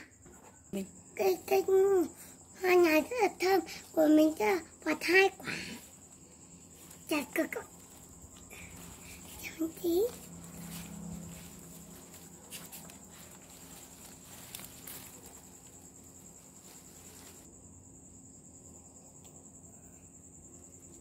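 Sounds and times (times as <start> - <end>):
night insects trilling: 0.0 - 21.0
leaves rustling: 5.4 - 17.5.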